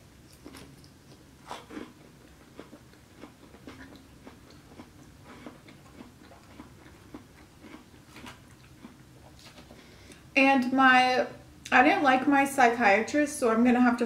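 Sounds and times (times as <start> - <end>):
person chewing salad: 0.1 - 10.3.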